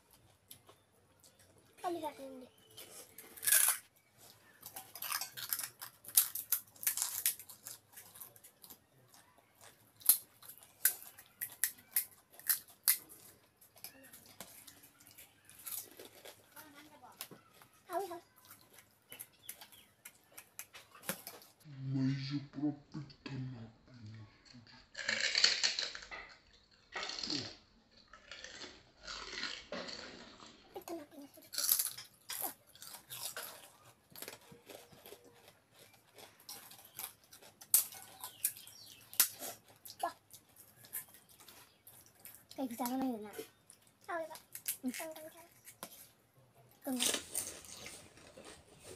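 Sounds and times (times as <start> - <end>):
crisp shells crunching: 2.6 - 21.6, 25.0 - 27.5, 31.2 - 42.6, 46.9 - 48.9.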